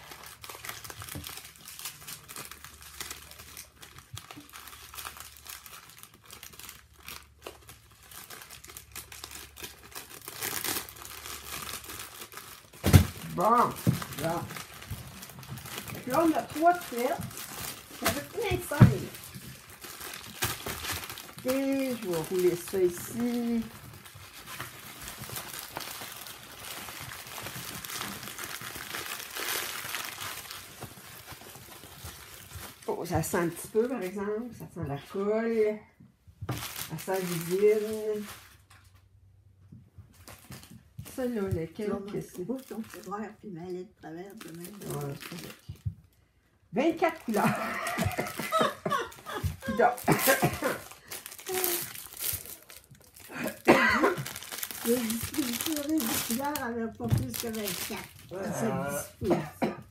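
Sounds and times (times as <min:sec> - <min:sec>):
plastic bags crinkling: 0:00.0 - 0:34.3, 0:36.5 - 0:39.1, 0:40.1 - 0:46.2, 0:46.9 - 0:59.3.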